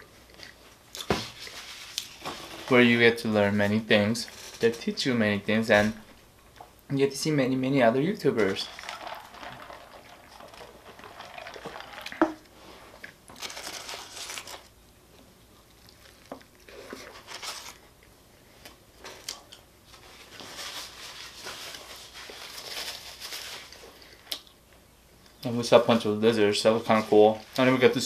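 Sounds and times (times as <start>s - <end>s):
foil wrapper crinkling: 13.3s - 14.7s, 15.9s - 17.9s, 20.0s - 24.1s.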